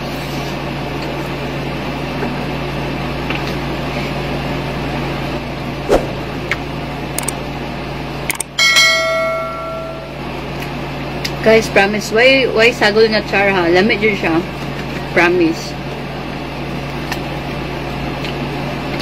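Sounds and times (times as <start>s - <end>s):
steady electrical hum: 0.0s - 19.0s
bell-like ding: 8.6s - 10.2s.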